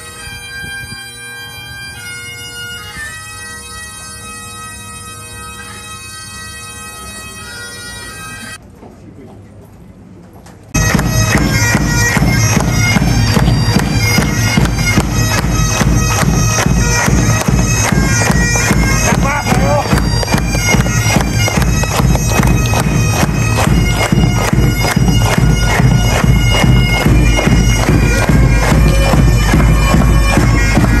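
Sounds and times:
bagpipes with drone: 0.0 - 8.6, 10.8 - 31.0.

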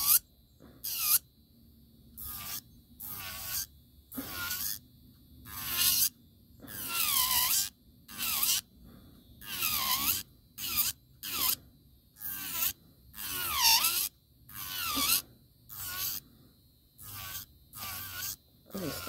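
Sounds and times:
electric nail file whine: 0.0 - 0.2, 0.8 - 1.2, 2.2 - 4.8, 5.4 - 8.7, 9.4 - 11.6, 12.2 - 16.2, 17.0 - 19.0.

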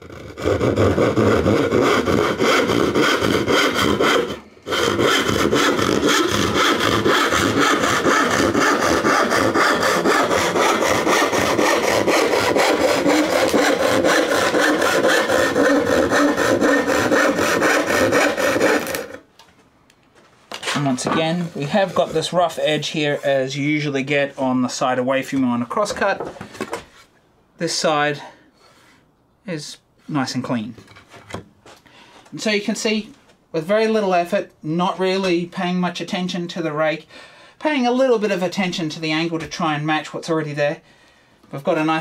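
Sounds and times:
hand saw cutting wood: 0.0 - 19.2, 20.8 - 23.2.

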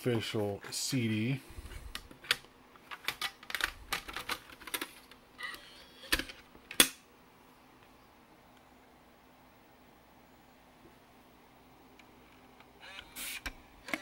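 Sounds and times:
plastic caddy clicking and rattling: 2.8 - 5.2.

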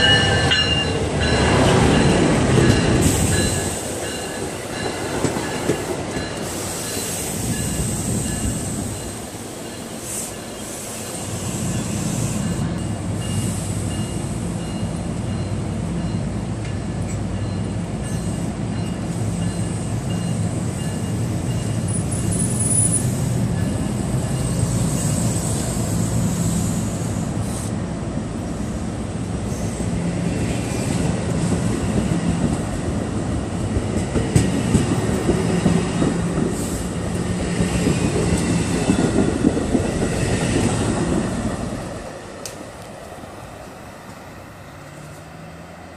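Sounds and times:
train wheels clicking on rail joints: 0.0 - 27.8, 29.4 - 45.4
train coaches rumbling past: 0.0 - 45.9.

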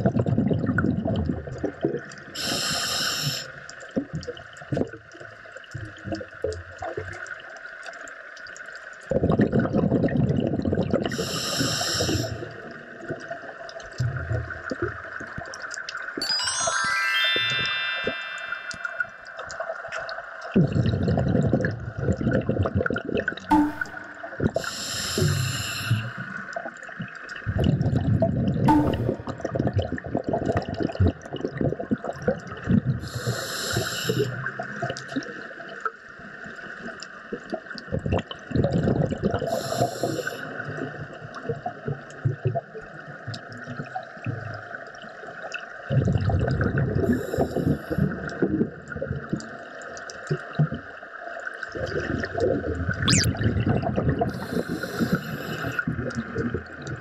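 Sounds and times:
bubbles gurgling underwater: 0.0 - 2.4, 9.0 - 11.4, 20.5 - 33.2, 34.2 - 57.0
steady water hiss: 2.4 - 3.8, 11.1 - 12.7, 23.6 - 27.4, 33.0 - 34.9, 39.4 - 40.8, 47.1 - 48.2, 54.3 - 56.1.

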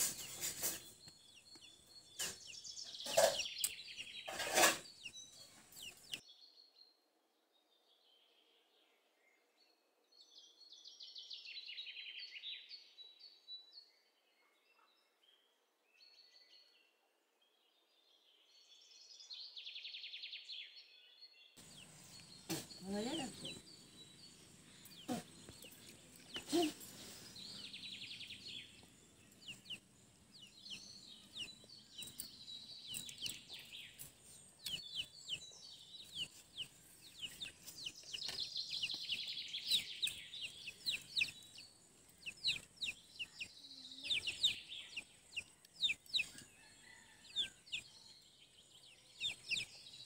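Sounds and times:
small birds chirping: 0.0 - 50.0.

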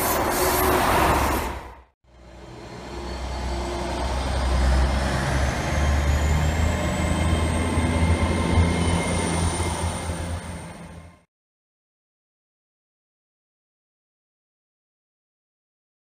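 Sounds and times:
diesel engine rumbling: 0.0 - 11.2.

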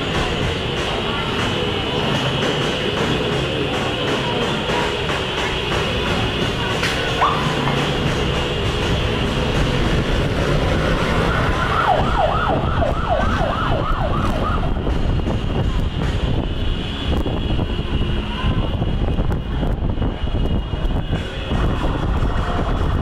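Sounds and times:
heavy road traffic: 0.0 - 23.0
police siren yelping: 11.2 - 14.8.

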